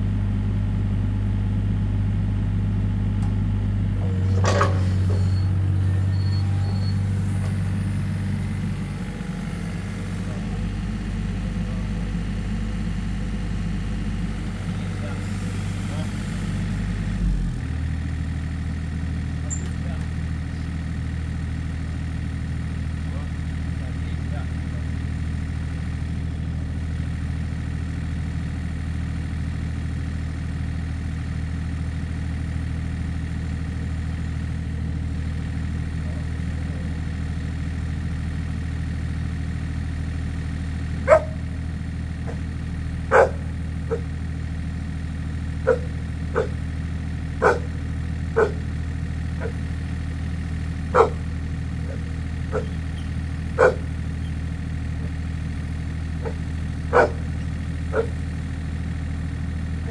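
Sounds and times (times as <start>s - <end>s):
excavator diesel engine idling: 0.0s - 59.9s
dog barking: 41.0s - 41.4s, 42.2s - 42.4s, 43.1s - 44.1s, 45.6s - 46.6s, 47.4s - 47.8s, 48.4s - 48.7s, 50.9s - 51.2s, 51.9s - 52.8s, 53.6s - 53.9s, 56.2s - 57.3s, 57.9s - 58.2s.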